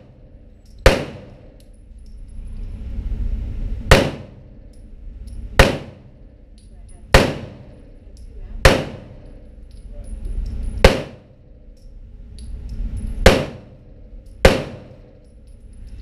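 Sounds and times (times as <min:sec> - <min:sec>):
handgun shots with echo: 0:00.8 - 0:01.6, 0:03.9 - 0:04.4, 0:05.6 - 0:06.1, 0:07.1 - 0:07.8, 0:08.6 - 0:09.4, 0:10.8 - 0:11.3, 0:13.3 - 0:13.8, 0:14.4 - 0:15.1.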